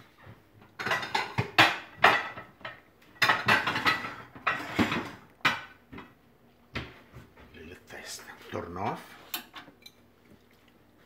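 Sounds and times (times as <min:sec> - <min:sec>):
dishes clattering and clinking: 0:00.2 - 0:07.6, 0:09.2 - 0:10.1.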